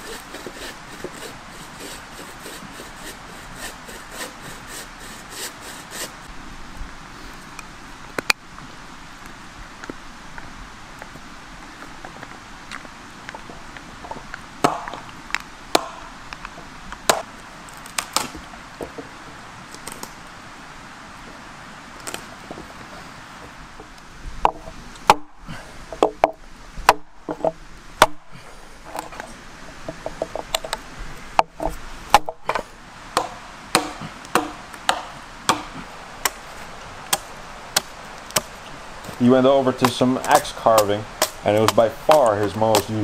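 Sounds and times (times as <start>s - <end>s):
axe chopping into log: 14.6s - 15.0s, 15.8s - 16.1s, 28.0s - 28.2s, 32.1s - 32.6s, 33.2s - 36.4s, 39.8s - 43.0s.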